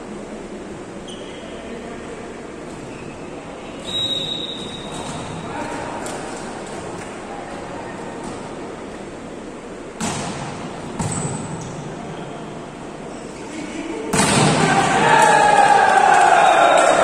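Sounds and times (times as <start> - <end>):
volleyball smacks: 10.0 - 11.5, 14.1 - 15.3
people shouting and cheering: 14.2 - 17.0.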